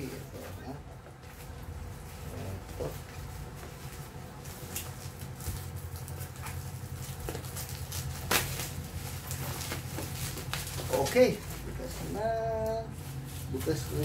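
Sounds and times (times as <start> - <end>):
plastic packaging crinkling: 4.3 - 14.0
scissors cutting packaging: 4.7 - 11.2.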